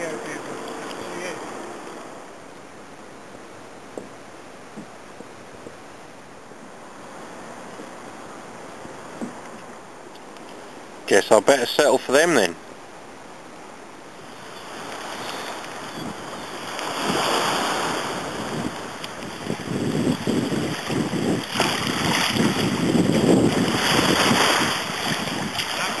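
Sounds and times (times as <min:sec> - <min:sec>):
small waves washing ashore: 0:00.0 - 0:26.0
wind gusting on microphone: 0:14.0 - 0:26.0.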